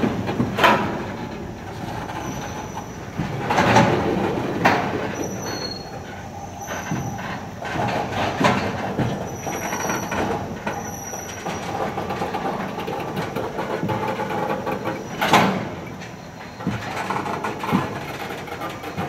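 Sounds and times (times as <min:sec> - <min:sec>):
wheel-on-rail rumble and clicking: 0:00.0 - 0:19.0
faint high wheel squeal: 0:01.9 - 0:03.3, 0:05.0 - 0:12.2, 0:14.5 - 0:19.0.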